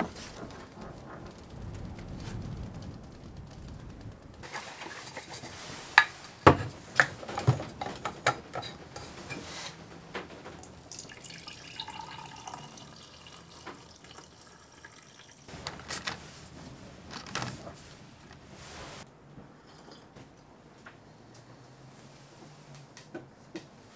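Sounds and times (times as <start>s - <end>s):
drink pouring into a mug: 10.6s - 15.5s.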